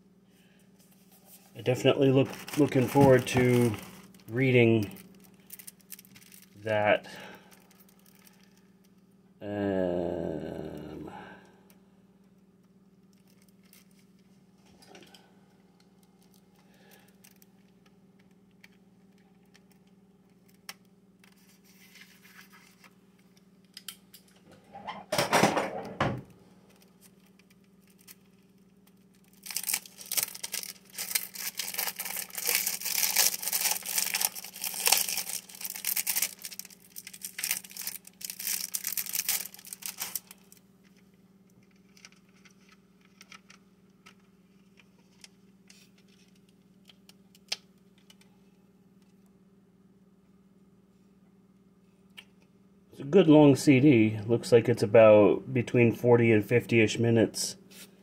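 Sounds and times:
plastic wrapping rustle: 0:00.9 - 0:08.6, 0:26.6 - 0:48.1
plastic wrapping crinkling: 0:01.0 - 0:08.7, 0:13.0 - 0:14.4, 0:15.9 - 0:23.8, 0:26.6 - 0:48.2.

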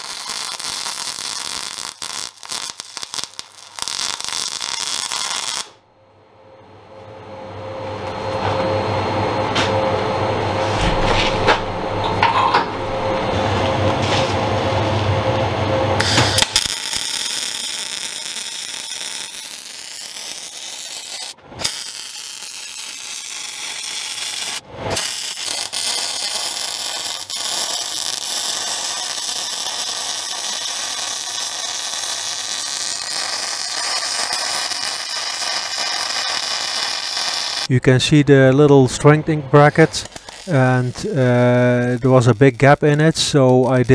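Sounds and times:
welding arc hissing: 0:00.0 - 0:05.8, 0:16.0 - 0:37.7, 0:39.7 - 0:43.9.

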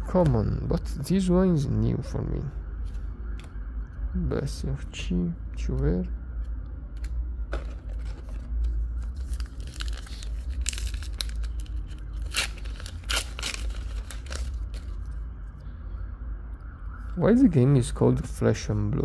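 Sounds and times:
steady low hum: 0:00.0 - 0:19.0
foil wrapper tearing and crinkling: 0:09.1 - 0:14.9.

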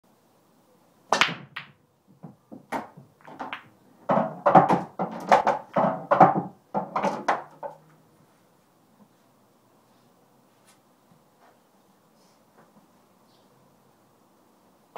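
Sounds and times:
cue ball cracking into rack: 0:01.1 - 0:07.8
pool balls clacking: 0:01.1 - 0:07.9.

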